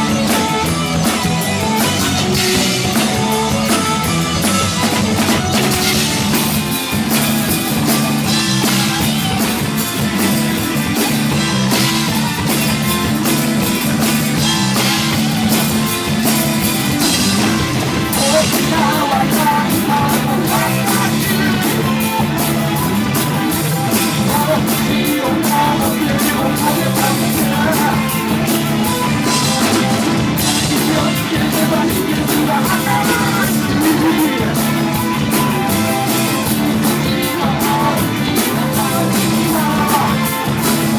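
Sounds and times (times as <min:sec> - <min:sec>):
drum kit with cymbal strokes: 0:00.0 - 0:40.9
electric guitar: 0:00.0 - 0:40.9
keyboards: 0:00.0 - 0:40.9
woman singing: 0:18.2 - 0:22.2, 0:30.6 - 0:34.7, 0:37.1 - 0:40.6.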